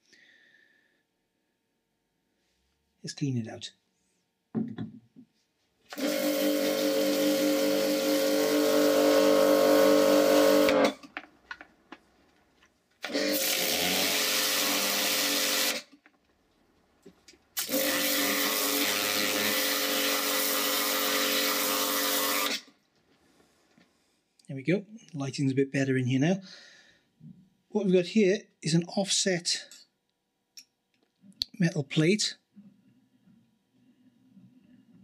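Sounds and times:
pressure washer spraying: 0:13.1 - 0:15.9, 0:17.6 - 0:22.5.

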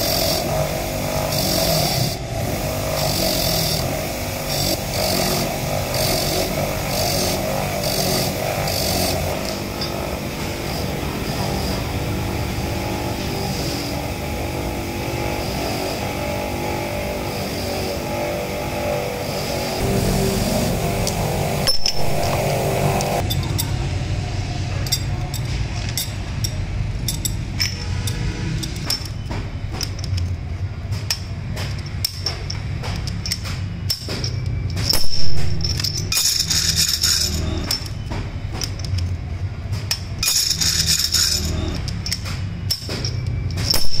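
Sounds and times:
background music: 0:00.0 - 0:23.6
steel bearing parts clinking: 0:02.9 - 0:14.3, 0:24.8 - 0:44.0.

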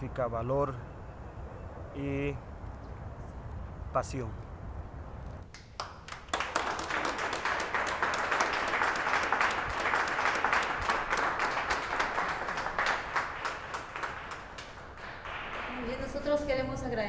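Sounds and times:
people applauding: 0:05.5 - 0:16.5.

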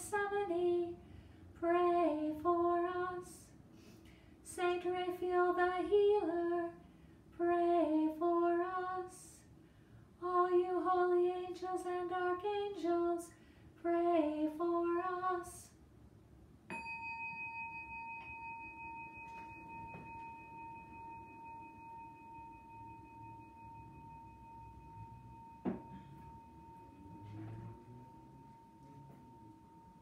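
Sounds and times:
struck bell ringing: 0:16.7 - 0:30.0.

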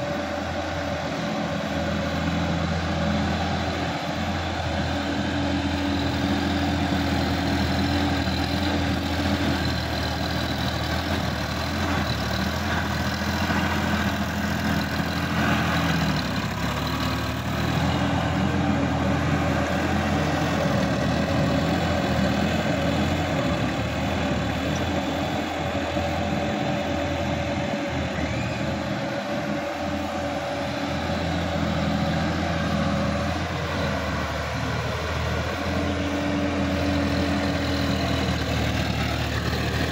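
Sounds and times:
tractor diesel engine running: 0:00.0 - 0:39.9.

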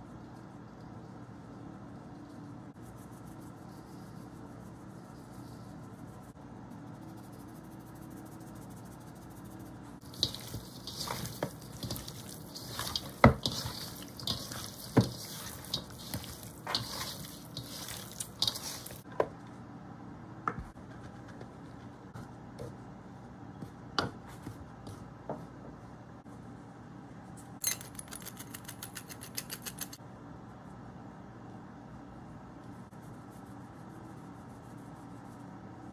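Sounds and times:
wet squishing of chicken: 0:10.0 - 0:19.0.

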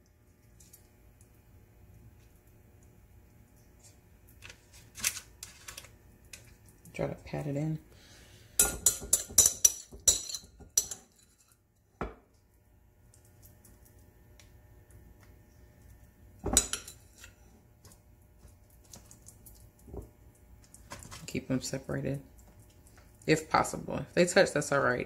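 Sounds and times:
metal spoon clinking against glass bowl: 0:08.6 - 0:11.5.

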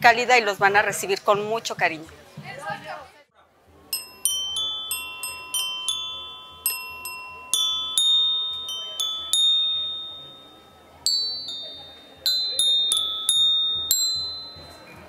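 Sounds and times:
bell-like melody: 0:03.9 - 0:15.0.

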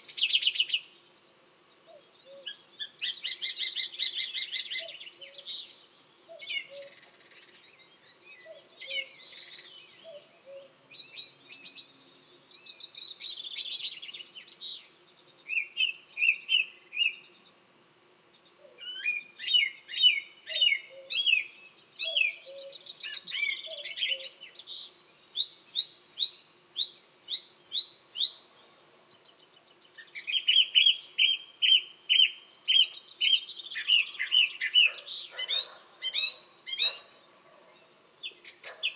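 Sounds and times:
song thrush singing: 0:00.0 - 0:38.9
faint cuckoo calling: 0:01.8 - 0:05.5, 0:06.3 - 0:07.2, 0:08.4 - 0:10.8, 0:18.6 - 0:24.6.

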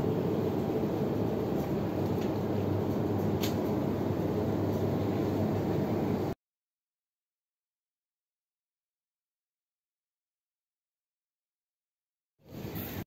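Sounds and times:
refrigerated cabinets humming: 0:00.0 - 0:06.4.

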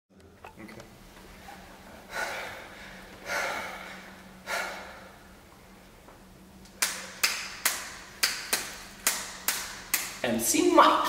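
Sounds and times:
beatboxing sharp clicks: 0:06.6 - 0:10.2.

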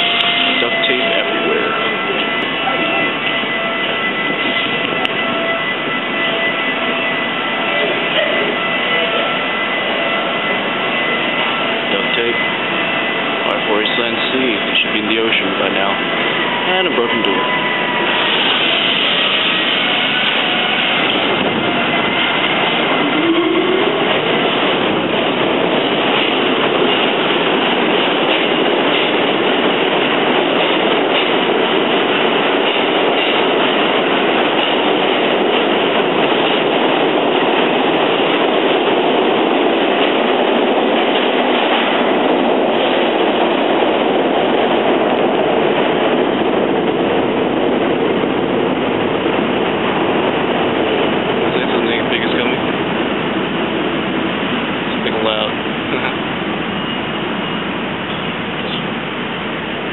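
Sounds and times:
train wheels on rails: 0:00.0 - 0:59.9.

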